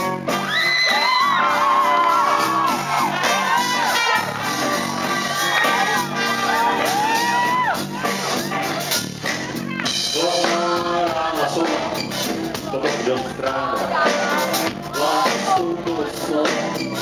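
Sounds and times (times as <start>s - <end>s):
live rock band playing: 0.0s - 17.0s
man singing: 10.0s - 17.0s.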